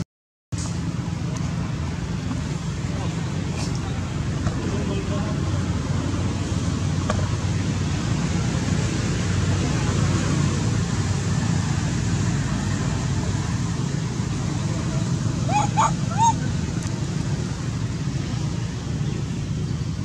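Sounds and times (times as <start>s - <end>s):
outdoor rumble and hiss: 0.5s - 20.0s
upward-sliding animal calls: 15.4s - 16.6s.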